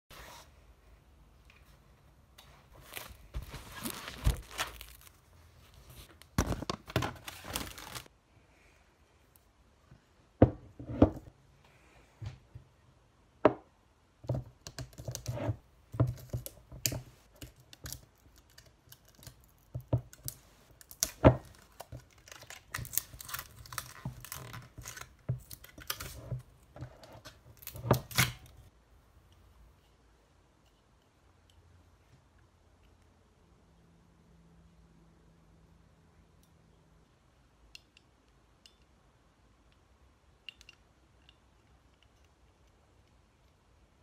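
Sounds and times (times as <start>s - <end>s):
crinkling: 1.5s - 8.1s, 14.8s - 28.7s.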